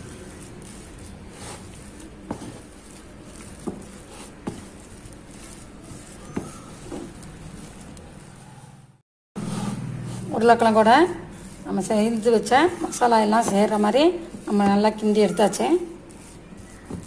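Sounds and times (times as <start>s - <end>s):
spatula mashing food in bowl: 0.0s - 8.7s, 9.4s - 17.0s
spatula knocking bowl: 2.2s - 7.3s, 11.8s - 15.6s.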